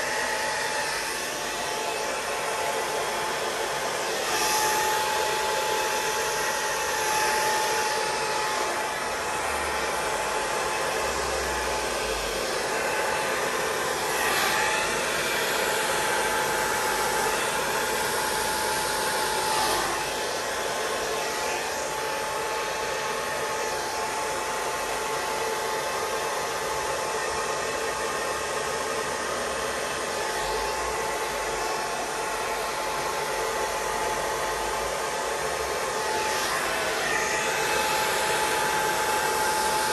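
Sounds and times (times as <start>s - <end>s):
hair dryer blowing: 0.0s - 39.9s.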